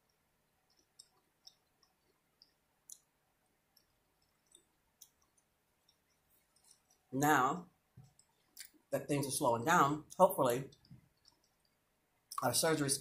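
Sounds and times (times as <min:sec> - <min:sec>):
mouth clicks of chewing: 0:00.7 - 0:03.1.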